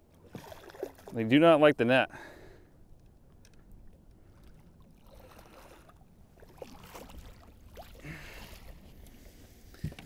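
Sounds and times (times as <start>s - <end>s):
small water splashes: 0.0s - 1.3s, 3.8s - 10.0s
water lapping: 0.0s - 10.0s.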